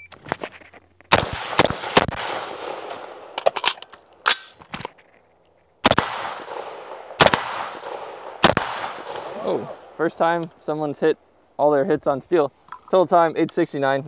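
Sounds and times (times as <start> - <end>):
gunshots with ringing echo: 1.1 - 3.4, 5.8 - 10.0.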